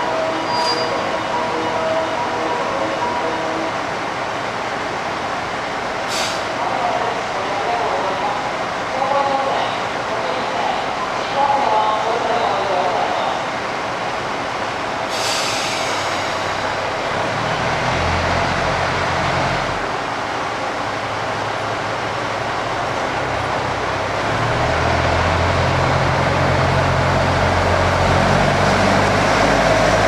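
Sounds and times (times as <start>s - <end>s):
diesel railcar engines throttling up: 0.0s - 7.6s, 13.5s - 30.0s
short hiss of air: 6.0s - 6.6s, 15.1s - 16.5s.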